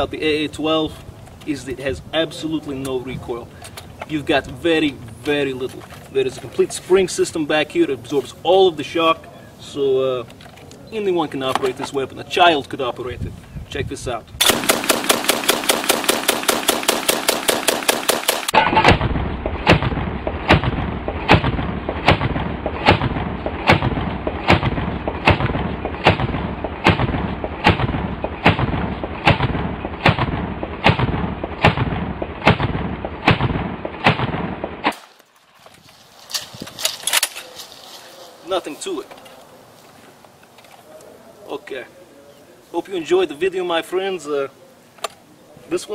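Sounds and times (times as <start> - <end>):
shotgun firing: 14.4 - 35.2.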